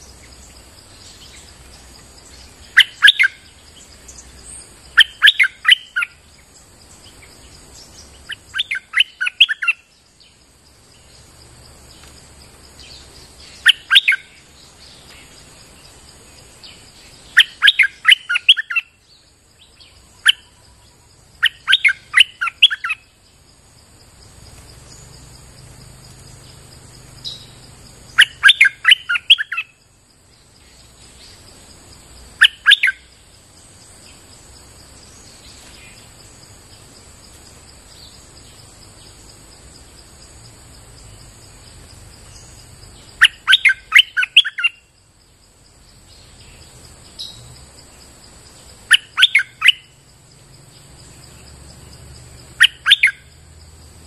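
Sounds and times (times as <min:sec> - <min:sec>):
high insect drone: 0:00.0 - 0:54.0.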